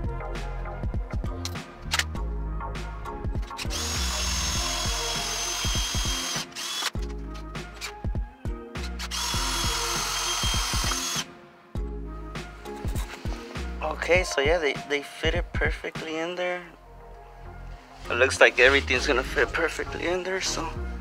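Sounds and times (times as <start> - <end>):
background music with a beat: 0.0 - 21.0
cordless drill whining: 3.6 - 7.0, 8.9 - 11.3.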